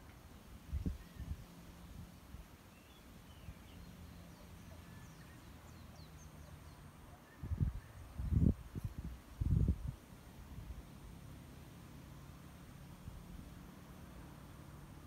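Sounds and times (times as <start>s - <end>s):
wind buffeting microphone: 0.6s - 2.5s, 7.4s - 10.8s.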